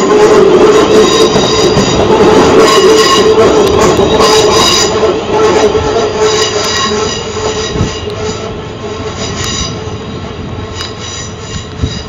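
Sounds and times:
sharp clicks from rails: 0:00.0 - 0:08.5
electric train rumbling and whining: 0:00.0 - 0:12.0.

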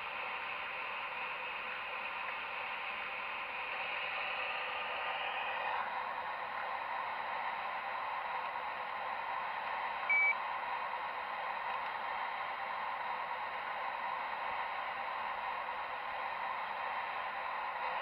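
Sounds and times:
short high beep: 0:10.1 - 0:10.4.

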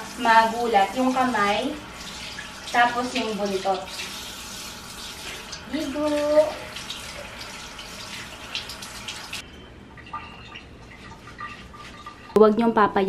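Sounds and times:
shower spray on dog's coat: 0:00.0 - 0:09.4.

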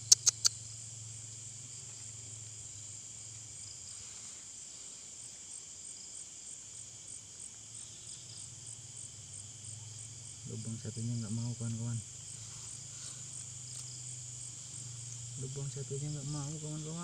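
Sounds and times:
crickets and insects chirring: 0:00.0 - 0:17.0
faint low hum: 0:06.6 - 0:17.0.

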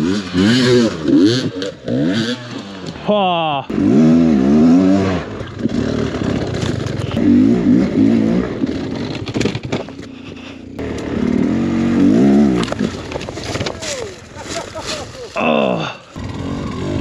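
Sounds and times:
dirt bike engine revving: 0:00.0 - 0:13.4, 0:15.5 - 0:17.0
bike clattering over rock: 0:08.9 - 0:10.1, 0:12.6 - 0:15.2.

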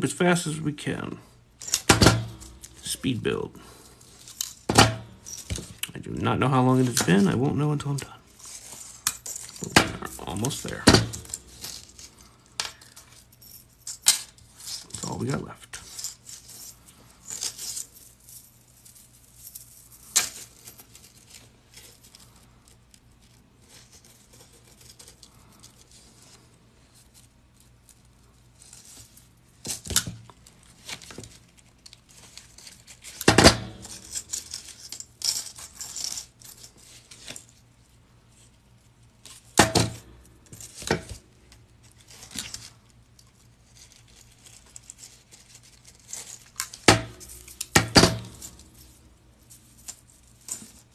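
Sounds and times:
metal rings clinking: 0:01.6 - 0:05.8, 0:08.0 - 0:15.2, 0:32.3 - 0:37.5, 0:46.0 - 0:50.9.

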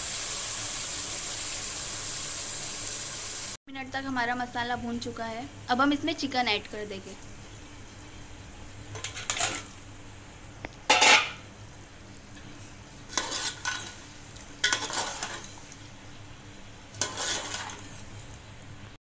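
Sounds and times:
chicken sizzling in hot oil: 0:00.0 - 0:03.6, 0:10.9 - 0:18.7
metal spoon scraping a pot: 0:09.0 - 0:09.7, 0:10.9 - 0:11.4, 0:13.1 - 0:13.9, 0:14.6 - 0:15.5, 0:17.0 - 0:17.8.

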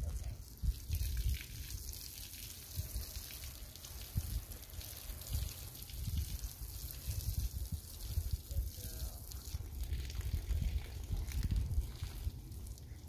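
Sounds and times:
garden hose spraying water: 0:00.0 - 0:13.0.

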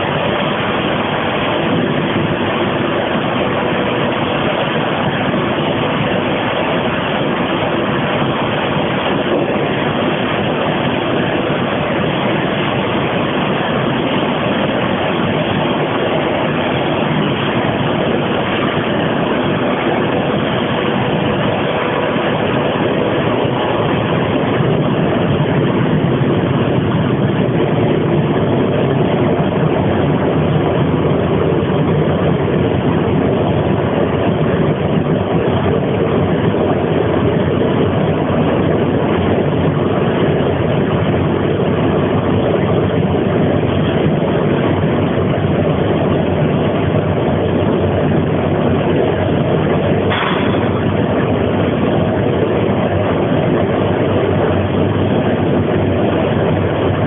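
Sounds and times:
faint hum: 0:00.0 - 0:57.0
gas burner flame roaring: 0:00.0 - 0:57.0.

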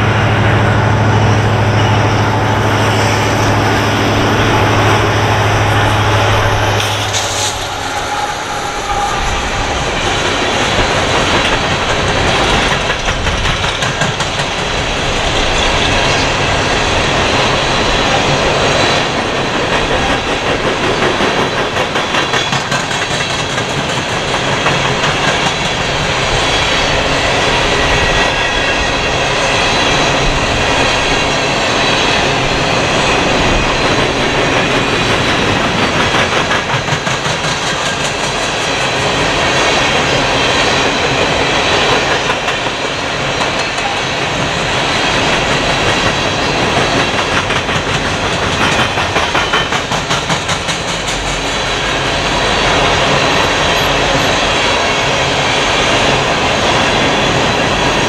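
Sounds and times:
train wheels clacking on rails: 0:00.0 - 0:58.0.

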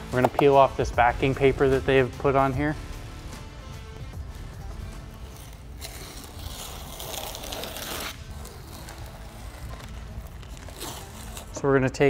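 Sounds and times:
backing paper peeling: 0:05.0 - 0:11.6.

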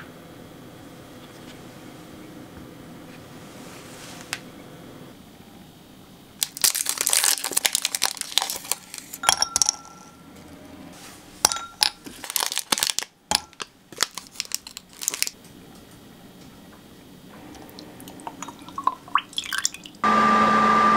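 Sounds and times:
foil wrappers crinkling: 0:06.4 - 0:09.2, 0:11.9 - 0:15.4.

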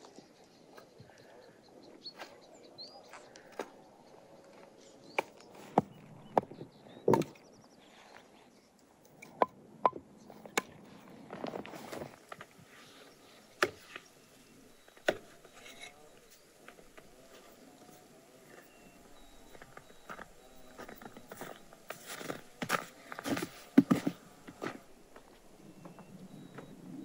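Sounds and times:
firewood logs knocking together: 0:05.2 - 0:07.4, 0:09.2 - 0:10.8, 0:13.6 - 0:17.2, 0:19.4 - 0:26.7.

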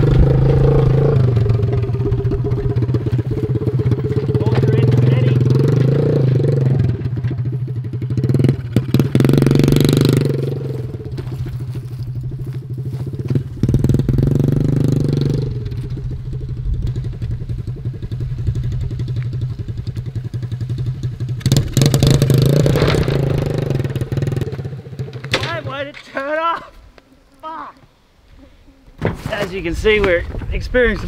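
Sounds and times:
rattling: 0:00.0 - 0:12.4
small petrol engine revving: 0:00.0 - 0:25.3.

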